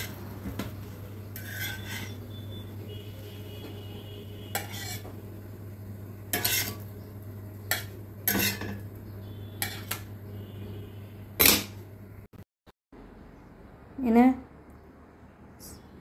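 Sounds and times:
spatula scraping iron griddle: 0:00.9 - 0:02.4, 0:04.5 - 0:05.2, 0:06.3 - 0:07.0, 0:07.6 - 0:08.8, 0:09.5 - 0:10.1.

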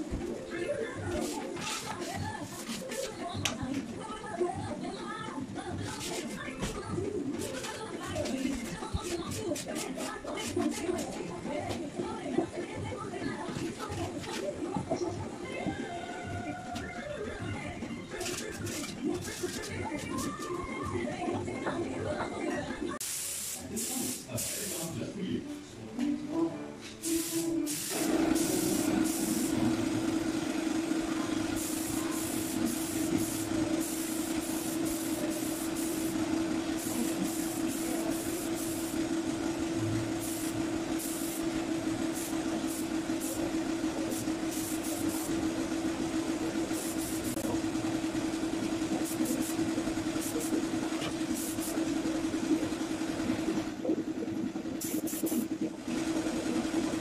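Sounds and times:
paint spray gun hissing: 0:23.0 - 0:24.9, 0:27.0 - 0:52.4, 0:54.8 - 0:56.2
air compressor motor running: 0:27.1 - 0:57.0.

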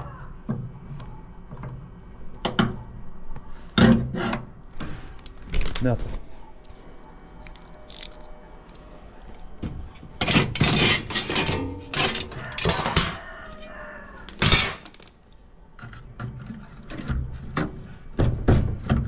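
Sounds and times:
sheet metal scraping and clanking: 0:10.2 - 0:13.2.

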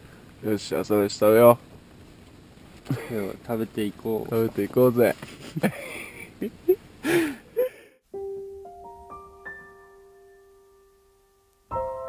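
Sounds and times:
outdoor voices: 0:00.4 - 0:07.9
solo piano broken chord: 0:08.1 - 0:12.0.

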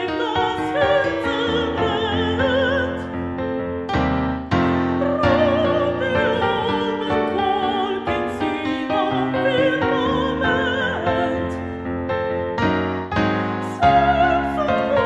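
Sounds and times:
woman singing classical style: 0:00.0 - 0:03.4, 0:04.9 - 0:11.8, 0:13.4 - 0:15.0
piano accompaniment: 0:00.0 - 0:15.0.

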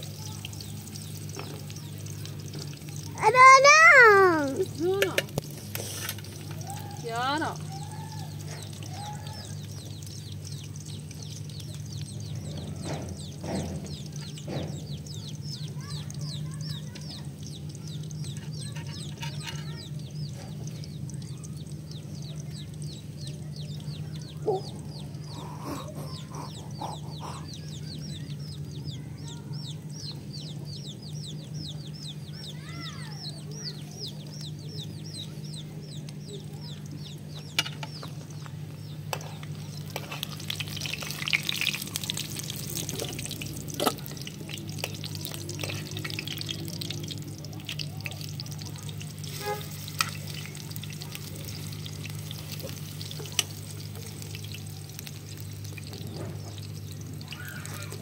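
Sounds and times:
food sizzling in oil: 0:00.0 - 0:24.2, 0:36.8 - 0:58.0
small bird chirping: 0:00.0 - 0:58.0
chickens clucking: 0:00.5 - 0:29.1, 0:33.3 - 0:58.0
steady low hum: 0:17.2 - 0:29.2.

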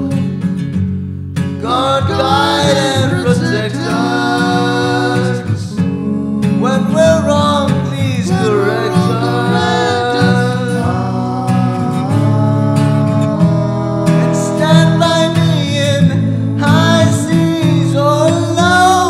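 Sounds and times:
guitar accompaniment: 0:00.0 - 0:19.0
person singing: 0:01.6 - 0:19.0.

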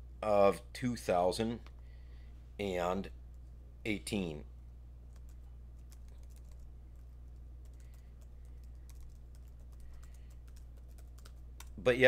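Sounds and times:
steady low hum: 0:00.0 - 0:12.0
keyboard typing: 0:05.1 - 0:11.8.

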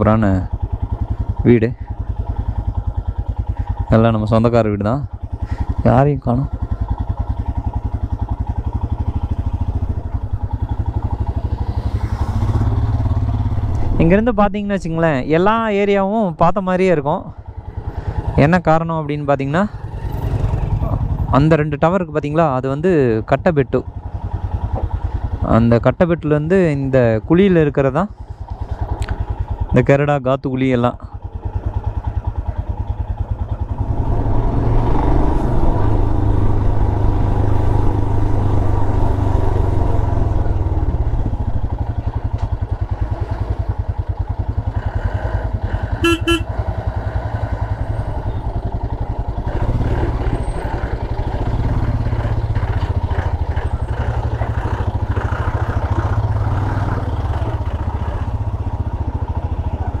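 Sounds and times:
motorcycle running: 0:00.0 - 1:00.0
horn toot: 0:45.9 - 0:46.6.

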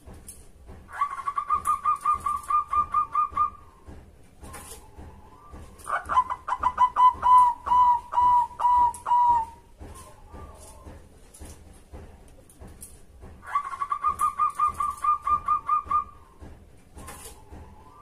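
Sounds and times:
dove cooing: 0:00.9 - 0:03.6, 0:04.5 - 0:10.9, 0:13.4 - 0:16.3.

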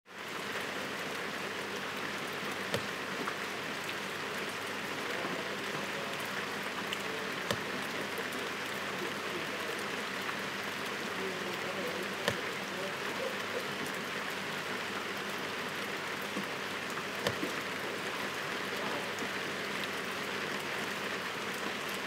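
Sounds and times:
heavy rain on street: 0:00.1 - 0:22.0
sharp raindrop hits: 0:02.6 - 0:03.2.

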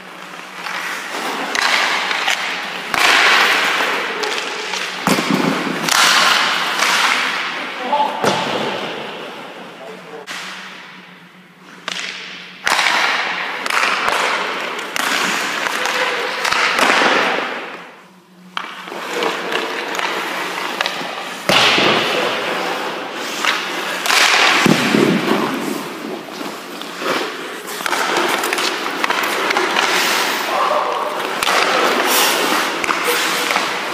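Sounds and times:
skate blades scraping ice: 0:00.0 - 0:07.6, 0:18.5 - 0:33.9.

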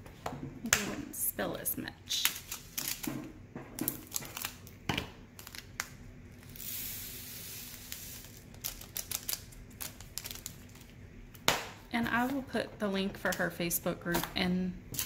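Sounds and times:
plastic bag rustling: 0:07.7 - 0:11.0.

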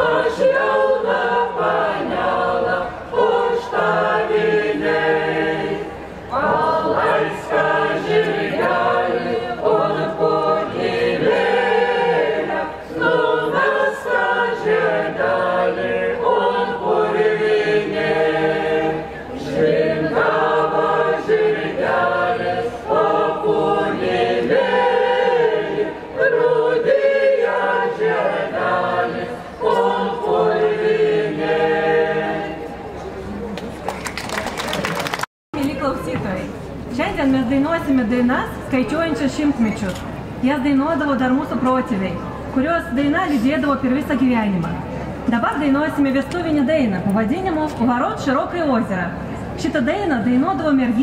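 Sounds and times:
choir singing a cappella: 0:00.0 - 0:33.2.

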